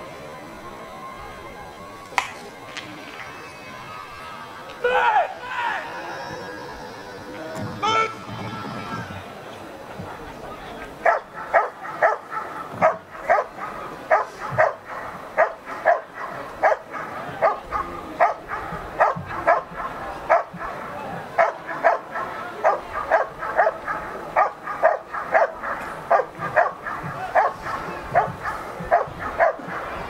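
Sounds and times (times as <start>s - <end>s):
dog barking: 11.0s - 20.8s, 21.4s - 30.0s.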